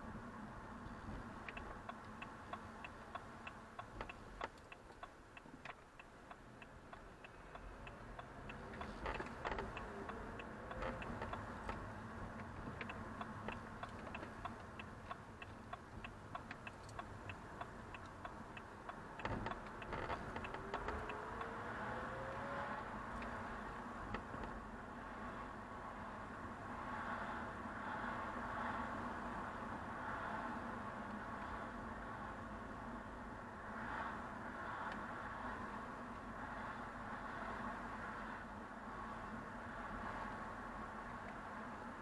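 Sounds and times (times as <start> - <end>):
low engine and road noise: 0.0 - 42.0
turn-signal indicator ticking: 0.8 - 22.1.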